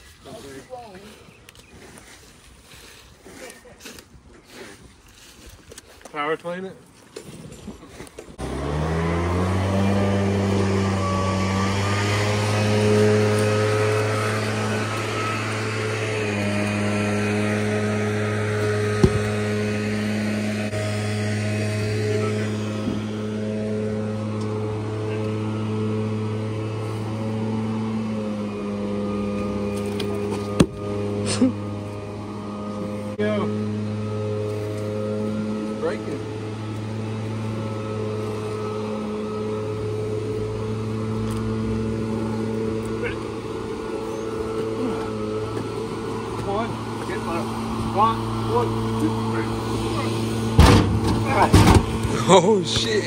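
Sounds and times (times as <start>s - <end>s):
engine humming steadily: 0.0s - 53.0s
tree trunk thudding on asphalt: 18.9s - 19.4s, 30.6s - 30.8s.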